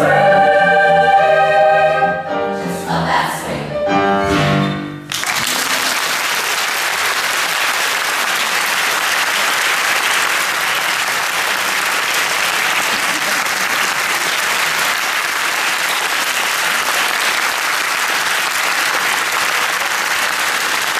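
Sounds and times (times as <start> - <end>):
children's choir singing: 0.0 - 3.8
piano: 0.0 - 6.0
audience applause: 5.1 - 20.9.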